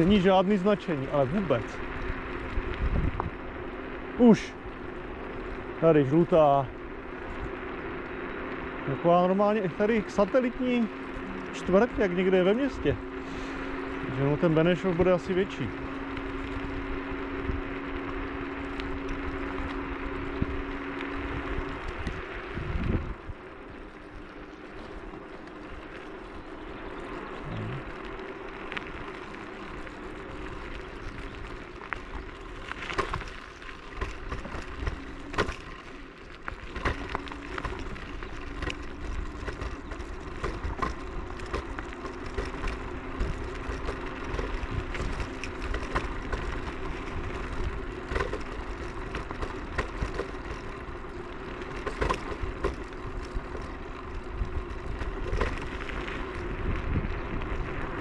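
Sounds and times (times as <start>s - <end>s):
electric scooter rolling: 0.0s - 58.0s
knocks and rattles over bumps: 29.8s - 56.4s.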